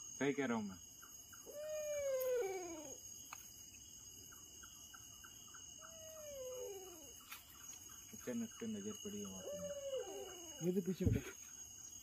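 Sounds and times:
insects trilling: 0:00.0 - 0:12.0
animal wailing cry: 0:01.4 - 0:03.0, 0:05.9 - 0:07.1, 0:09.4 - 0:10.7.

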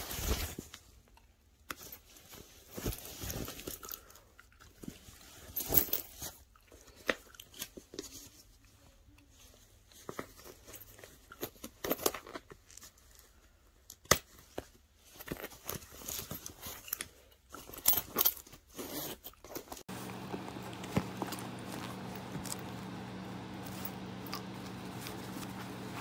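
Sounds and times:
handbag material crinkling: 0:15.0 - 0:26.0.

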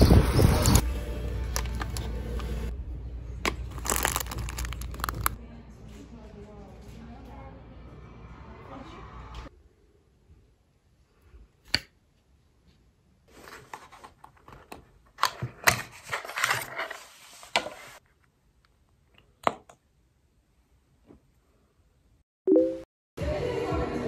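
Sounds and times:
packaging rustling: 0:03.5 - 0:05.4.

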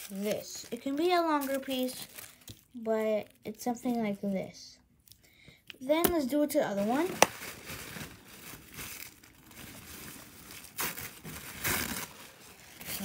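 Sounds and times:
crinkly sheet crumpling: 0:00.0 - 0:04.0, 0:06.6 - 0:13.0.

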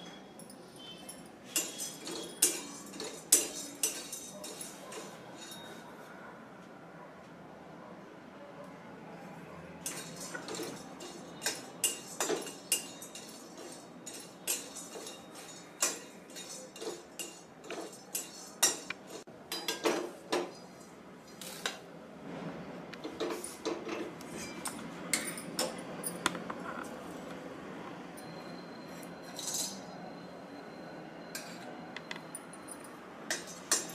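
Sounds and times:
cloves rattling: 0:01.5 - 0:05.8, 0:09.8 - 0:20.7
spatula scraping a metal pan: 0:09.9 - 0:19.3, 0:24.3 - 0:24.7.

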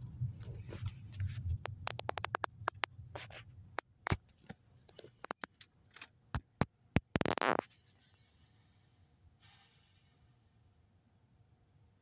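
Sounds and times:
low hum: 0:00.0 - 0:04.0.

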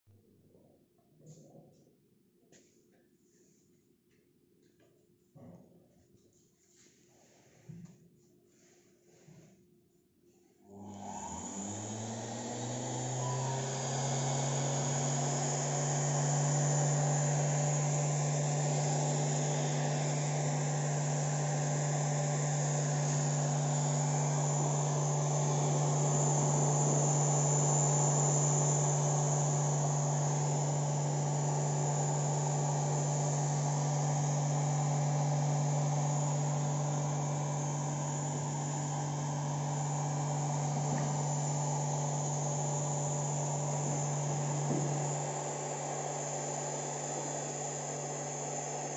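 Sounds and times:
electric motor hum: 0:10.7 - 0:48.9
faint high whine: 0:13.2 - 0:13.8.

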